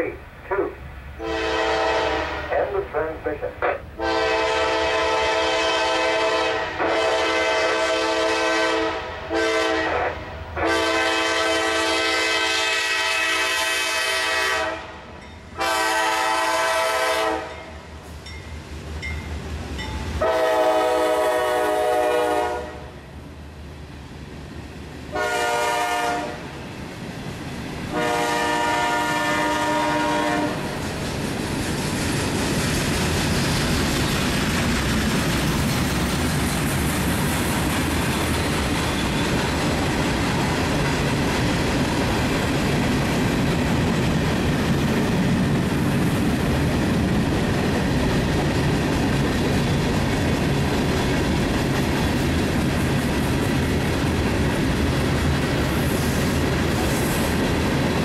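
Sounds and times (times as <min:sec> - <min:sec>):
train horn chord: 0:01.2 - 0:02.6, 0:04.0 - 0:15.0, 0:15.6 - 0:17.7, 0:20.2 - 0:23.0, 0:25.1 - 0:26.5, 0:27.9 - 0:30.7
freight train wheels clattering: 0:30.5 - 0:58.0.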